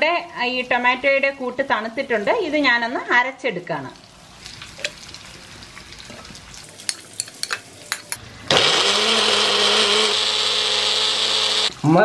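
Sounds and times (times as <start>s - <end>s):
mixer grinder motor grinding: 8.5s - 11.8s.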